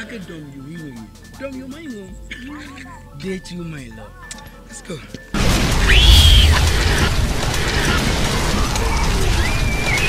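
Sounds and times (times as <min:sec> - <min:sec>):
dense crackling: 0:05.4 - 0:10.0
explosion boom with low rumble: 0:05.4 - 0:10.0.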